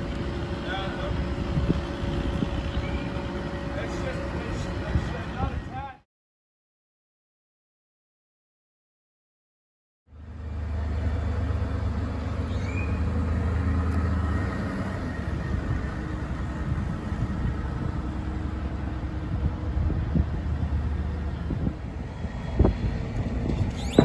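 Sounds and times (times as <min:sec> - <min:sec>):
outboard motor running: 0:00.0 - 0:05.5.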